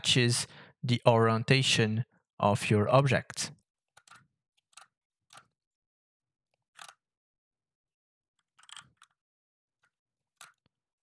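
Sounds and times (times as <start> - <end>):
keyboard and mouse clicks: 4.0 - 5.6, 6.6 - 7.0, 8.4 - 9.2.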